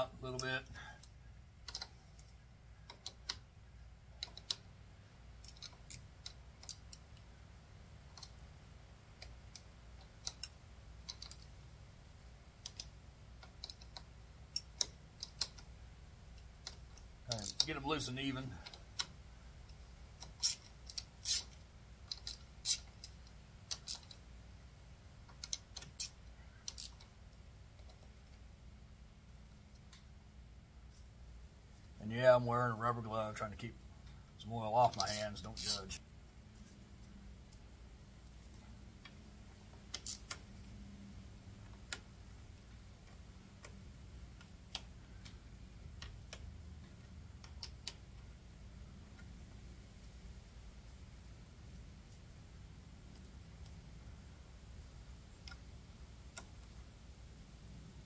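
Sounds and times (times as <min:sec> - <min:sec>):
faint low hum: 0:00.0 - 0:58.0
socket ratchet clicking: 0:05.4 - 0:07.2, 0:12.6 - 0:17.7, 0:18.6 - 0:24.3, 0:25.2 - 0:27.2, 0:39.0 - 0:40.6
ratchet wrench clicking: 0:20.2 - 0:24.2, 0:25.3 - 0:27.1, 0:39.9 - 0:40.4.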